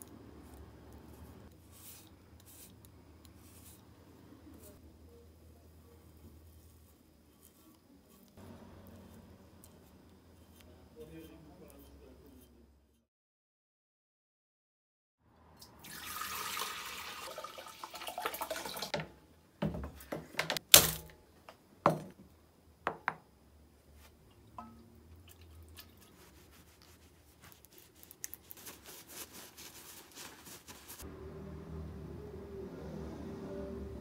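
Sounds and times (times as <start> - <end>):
cloth rubbing on steel rod: 5.9 - 13.0, 26.0 - 31.1.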